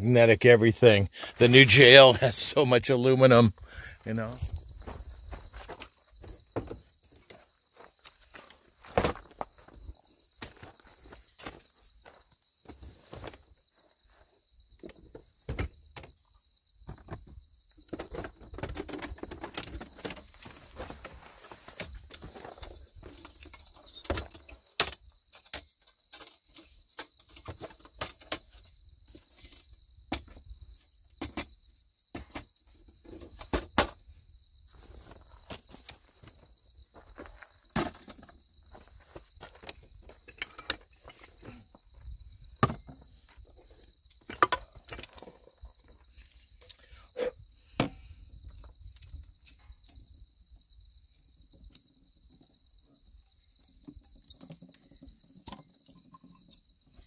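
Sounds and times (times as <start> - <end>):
high insect trill: 0.0 - 57.0.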